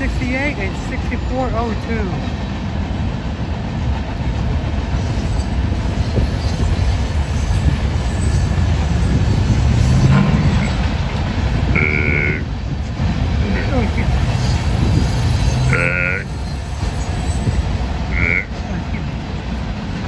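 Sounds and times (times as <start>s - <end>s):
freight train rumbling on rails: 0.0s - 20.0s.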